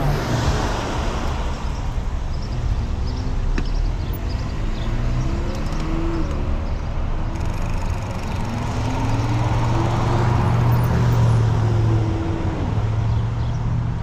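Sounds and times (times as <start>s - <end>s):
car engine: 0.0s - 13.6s
bicycle road rumble: 0.0s - 14.0s.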